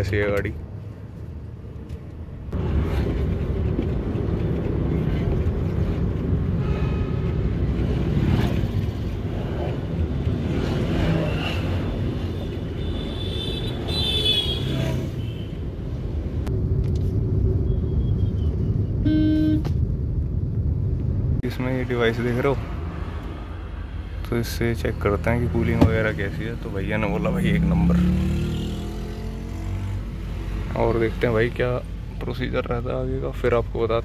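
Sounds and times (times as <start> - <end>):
car engine and road rumble: 0.0 - 34.0
brief high-pitched tones: 19.0 - 19.7.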